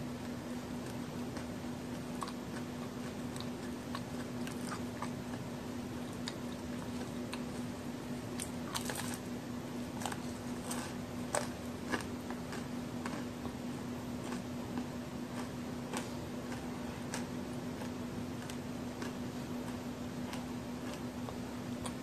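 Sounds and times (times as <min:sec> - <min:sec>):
biting and chewing cookie: 0:00.0 - 0:22.0.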